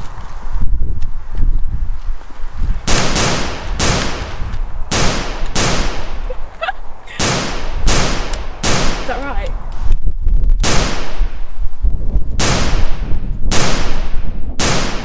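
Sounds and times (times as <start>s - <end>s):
gunshots: 2.9s - 6.2s, 7.1s - 9.5s, 10.6s - 11.4s, 12.4s - 15.0s.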